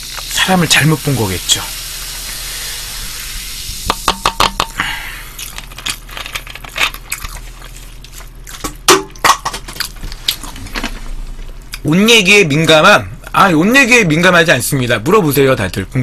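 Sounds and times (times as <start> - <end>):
cola fizzing as poured: 0.0 - 5.0
sharp knocks: 3.9 - 4.8.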